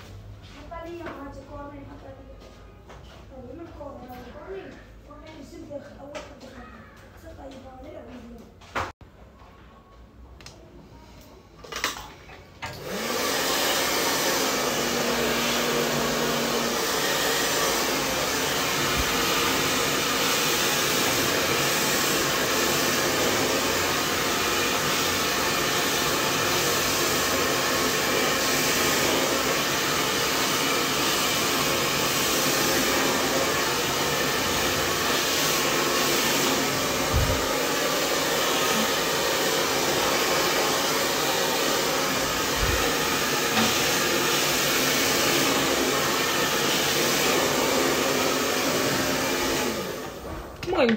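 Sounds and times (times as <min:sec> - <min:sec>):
hair dryer blowing: 0:12.6 - 0:50.9.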